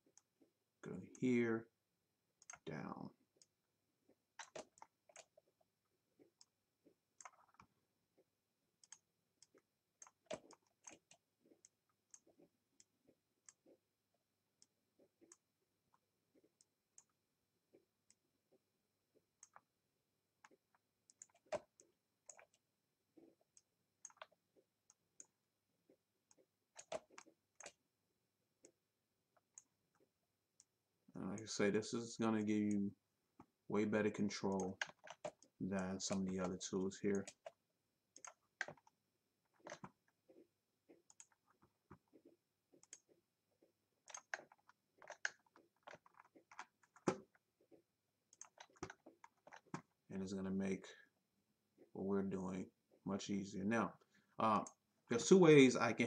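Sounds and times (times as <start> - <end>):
computer mouse clicks: 2.4 - 2.6, 4.4 - 5.4, 8.8 - 13.7, 20.4 - 22.6, 23.5 - 25.3, 26.3 - 27.8, 34.1 - 39.0, 41.0 - 42.2, 42.8 - 43.1, 44.0 - 47.4, 48.3 - 49.9.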